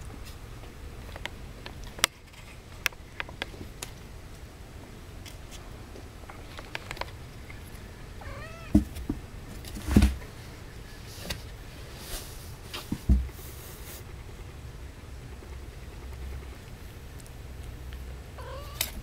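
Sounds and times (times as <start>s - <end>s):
cat mewing: 8.2s - 8.8s, 18.4s - 19.0s.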